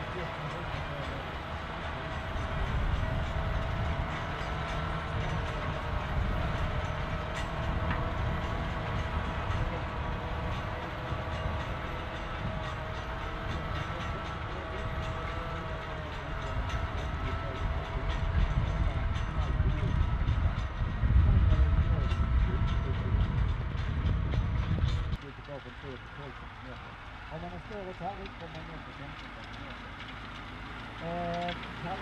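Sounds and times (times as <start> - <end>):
constant engine whine: 0.0 - 32.0
tractor diesel engine rumbling: 0.0 - 32.0.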